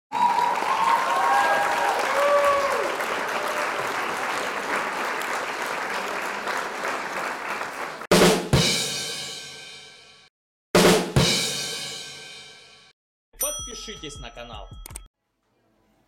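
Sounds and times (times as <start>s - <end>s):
crowd applauding and cheering: 0.1s - 8.1s.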